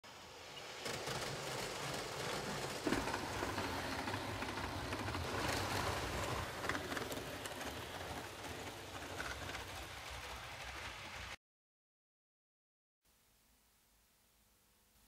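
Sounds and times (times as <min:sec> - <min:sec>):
model train running on track: 0:00.1 - 0:11.4.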